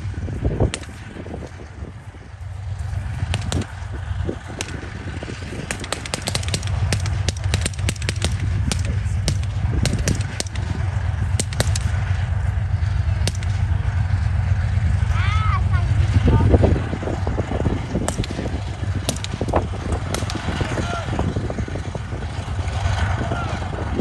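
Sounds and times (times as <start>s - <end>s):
armoured vehicle engine rumble: 0.0s - 24.0s
blank rifle fire cracks: 5.7s - 10.7s, 11.4s - 12.0s, 13.2s - 13.6s, 20.0s - 20.5s.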